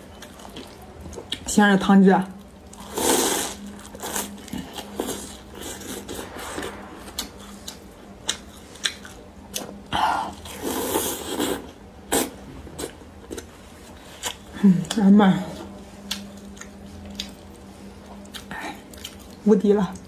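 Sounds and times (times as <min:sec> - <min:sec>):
wet chewing: 0:16.0 - 0:19.4.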